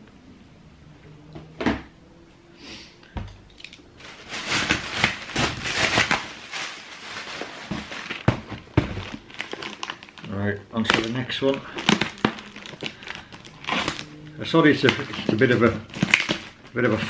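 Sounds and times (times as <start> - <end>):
cardboard rustling and scraping: 4.0 - 9.9, 11.8 - 17.0
shoebox knocks and thuds: 7.5 - 9.2.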